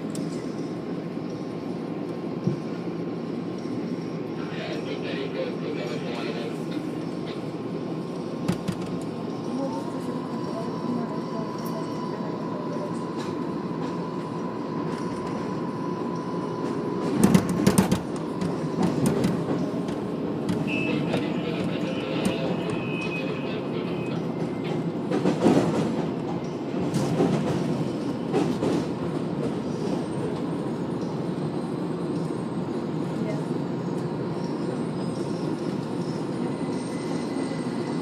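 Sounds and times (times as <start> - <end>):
subway car rumbling on track: 0.0 - 38.0
high wheel squeal: 20.6 - 24.6.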